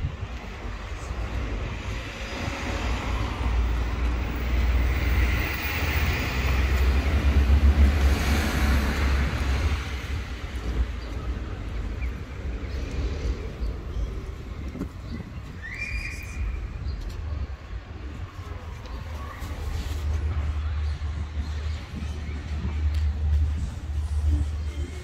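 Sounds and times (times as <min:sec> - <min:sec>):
steady low rumble: 0:00.0 - 0:25.0.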